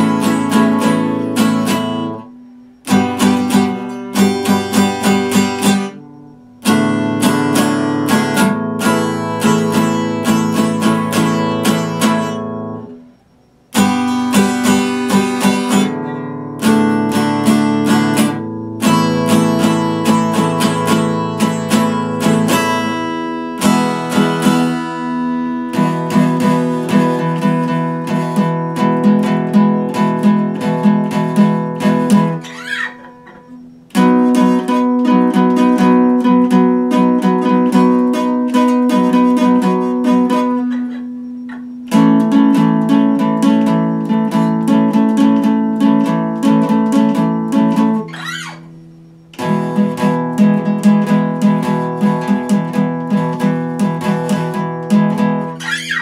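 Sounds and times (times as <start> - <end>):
acoustic guitar strumming chords: 0.0 - 56.0.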